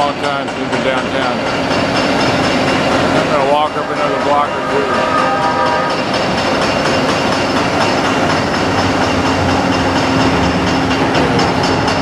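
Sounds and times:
train wheels rumbling on rails: 0.0s - 12.0s
held tone: 3.2s - 6.6s.

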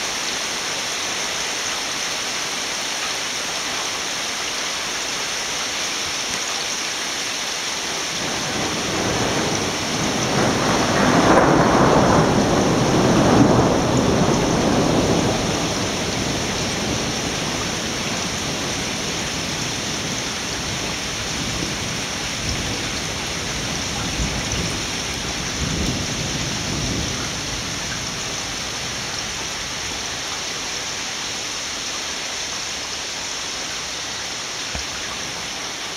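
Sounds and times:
torrential rain hissing: 0.0s - 35.9s
rumble of thunder: 8.2s - 29.2s.

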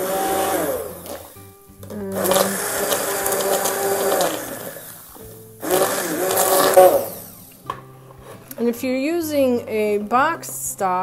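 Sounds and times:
immersion blender motor whine: 0.0s - 7.6s.

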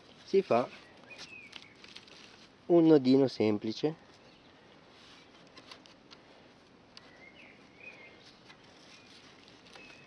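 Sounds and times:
faint bird chirp: 0.3s - 2.3s, 4.0s - 5.4s, 7.0s - 10.0s.

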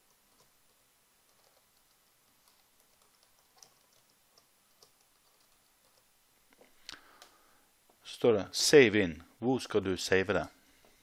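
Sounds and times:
keyboard typing: 0.0s - 6.1s.

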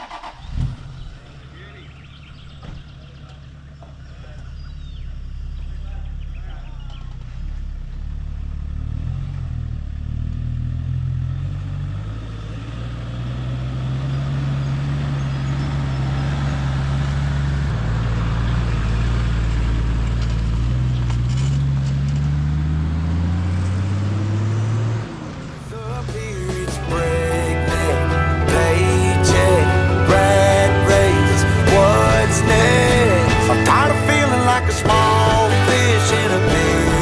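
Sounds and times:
vehicle engine accelerating: 0.0s - 37.0s.

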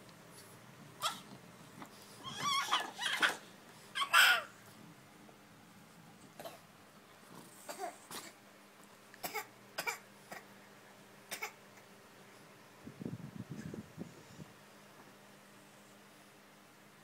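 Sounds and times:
toddler crying or coughing: 4.0s - 4.5s, 7.7s - 8.4s, 9.2s - 10.5s, 11.3s - 11.6s.

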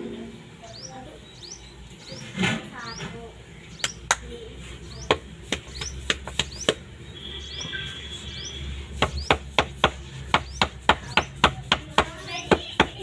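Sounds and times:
palms slapping dough: 5.0s - 6.9s, 8.9s - 13.0s.

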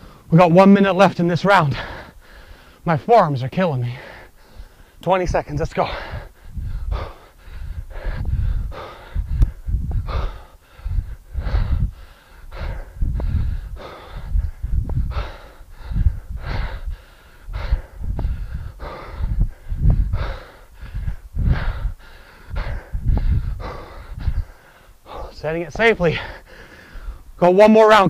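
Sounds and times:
man breathing hard: 0.0s - 0.3s, 1.7s - 2.9s, 3.8s - 5.0s, 5.8s - 27.4s
forceful breath out: 5.9s - 25.4s, 26.2s - 27.3s.

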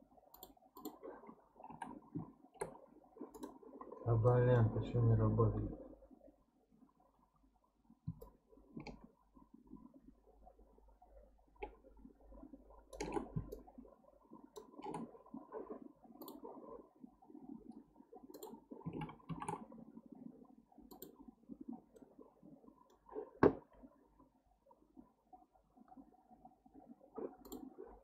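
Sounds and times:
mouse and keyboard clicks: 0.3s - 1.0s, 12.9s - 13.6s.

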